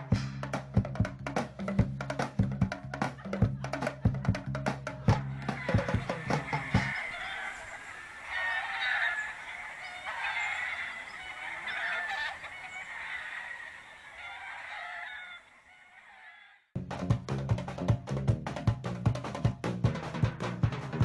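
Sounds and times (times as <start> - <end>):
roosters crowing: 5.0 - 16.7.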